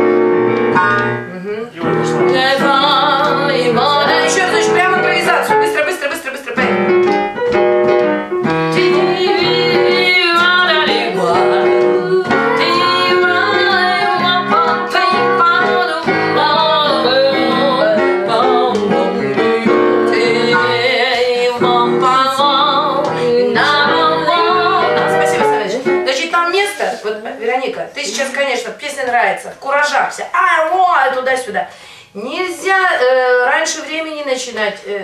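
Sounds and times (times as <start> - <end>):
piano accompaniment: 0.0 - 26.8
woman singing jazz with vibrato: 0.8 - 5.9, 8.6 - 27.1, 32.0 - 34.2.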